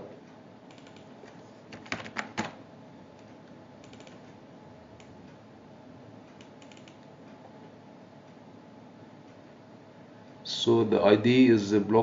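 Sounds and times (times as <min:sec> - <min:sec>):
keyboard key clicks: 0:03.8 - 0:04.2, 0:06.4 - 0:07.0.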